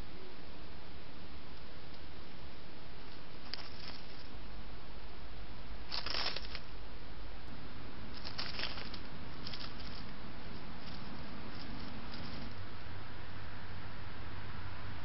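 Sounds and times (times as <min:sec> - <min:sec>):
microphone hiss: 0:00.0 - 0:15.0
mouse rustling through dry leaves: 0:01.5 - 0:12.9.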